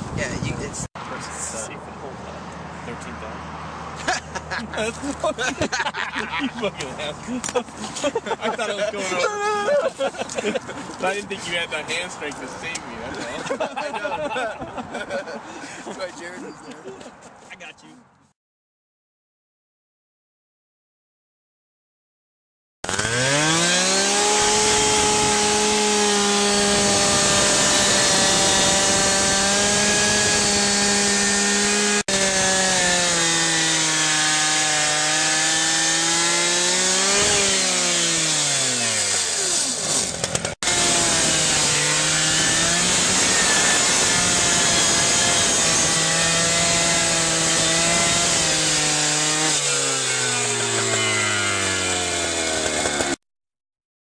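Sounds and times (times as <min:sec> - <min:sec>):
rescue saw cutting roof: 0:22.8 - 0:53.2.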